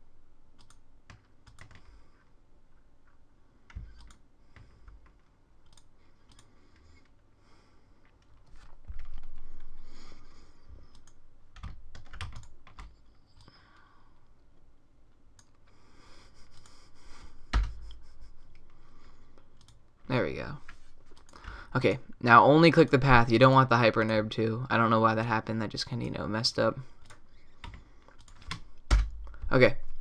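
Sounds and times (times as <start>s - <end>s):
keyboard keys clicking: 0.6s - 1.9s, 10.9s - 13.6s.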